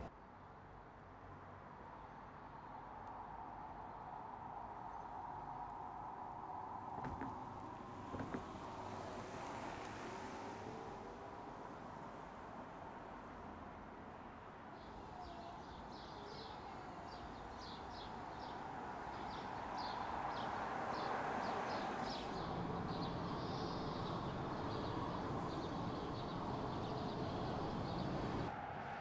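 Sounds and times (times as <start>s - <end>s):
car tyre and road noise: 22.2s - 29.0s
birds chirping: 22.4s - 28.5s.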